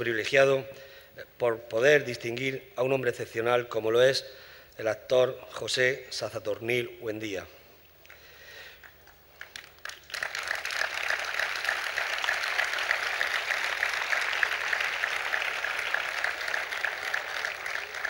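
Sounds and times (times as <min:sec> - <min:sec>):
audience applauding: 0:08.8 - 0:18.0.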